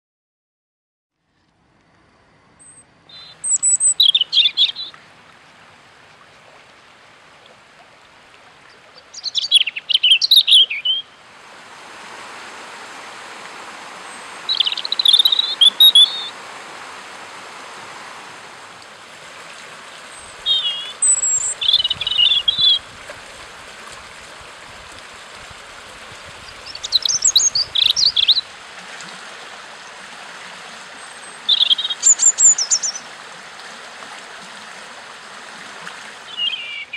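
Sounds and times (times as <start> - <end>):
songbird singing: 2.3 - 5.0, 8.6 - 23.0, 26.2 - 28.6, 30.9 - 33.1, 36.2 - 36.9
stream running over stones: 3.1 - 36.9.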